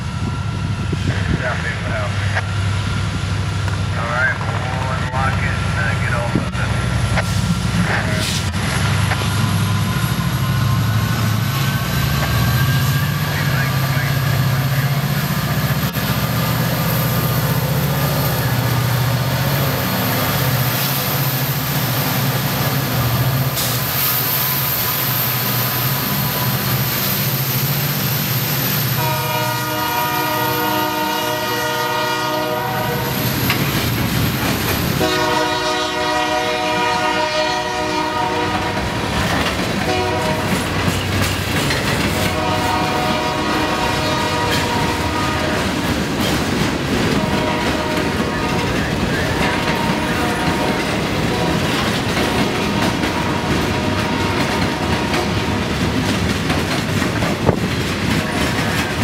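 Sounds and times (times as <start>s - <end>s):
freight cars rattling over rails: 0.0s - 32.0s, 32.9s - 37.0s, 37.8s - 59.0s
diesel locomotive engine drone: 0.0s - 59.0s
locomotive horn: 29.0s - 33.2s, 35.0s - 39.2s, 39.8s - 40.8s, 42.2s - 45.8s, 47.1s - 55.5s.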